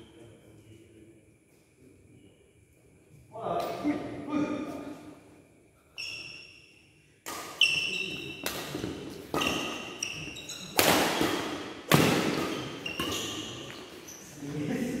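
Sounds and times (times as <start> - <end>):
rackets striking shuttlecock: 7.2 - 10.1, 10.7 - 13.1.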